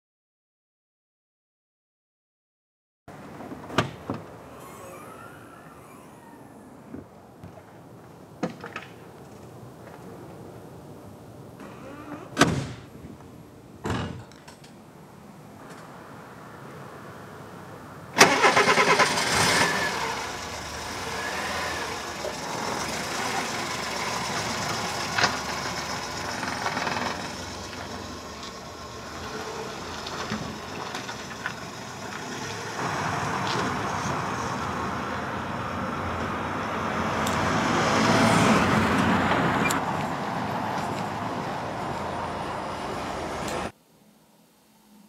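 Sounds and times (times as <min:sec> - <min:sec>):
car engine starting and running: 0:04.2 - 0:07.3, 0:18.2 - 0:40.4.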